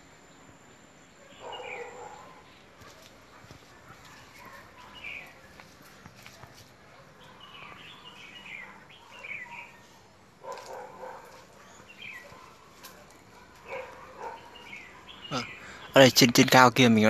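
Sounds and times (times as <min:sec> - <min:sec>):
small birds chirping: 0:00.0 - 0:17.0
footsteps crunching dry leaves: 0:02.8 - 0:06.8, 0:09.0 - 0:14.9.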